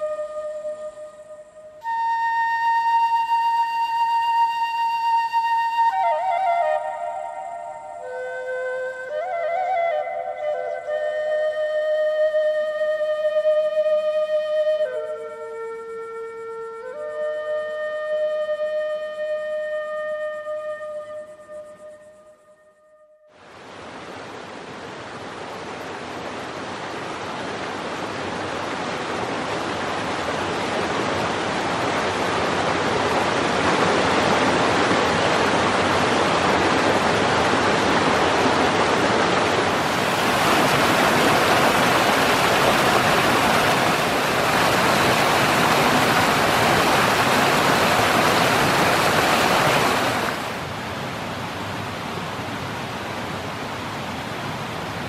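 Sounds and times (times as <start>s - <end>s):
stream flowing over rocks: 23.4s - 55.0s.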